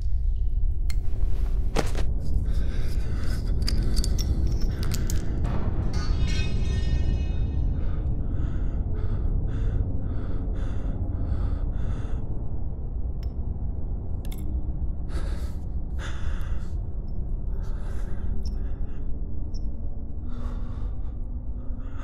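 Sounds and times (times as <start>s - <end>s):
low rumbling drone: 0.0s - 22.0s
man breathing hard: 2.3s - 5.4s, 7.7s - 13.2s, 15.0s - 19.5s, 20.1s - 22.0s.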